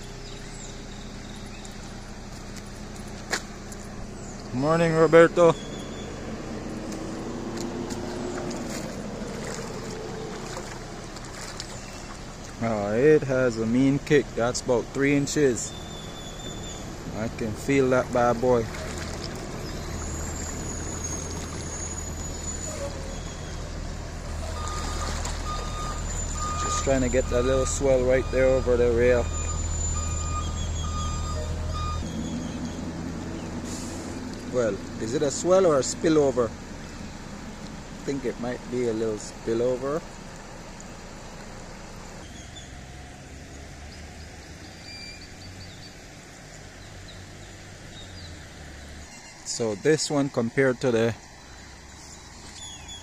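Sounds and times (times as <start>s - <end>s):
bird chirping: 0.0s - 6.7s, 15.4s - 17.4s, 18.3s - 33.6s, 43.5s - 46.1s, 46.8s - 50.2s, 50.8s - 53.0s
floodwater rushing over bridge: 1.6s - 31.6s, 32.2s - 53.0s.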